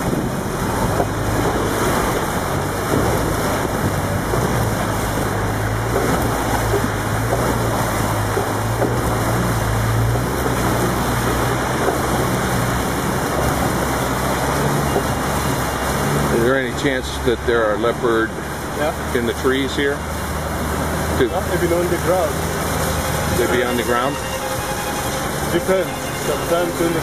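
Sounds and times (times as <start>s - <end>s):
wind on microphone: 0.0s - 16.4s
vehicle engine humming: 0.0s - 27.0s
water splashing: 0.0s - 27.0s.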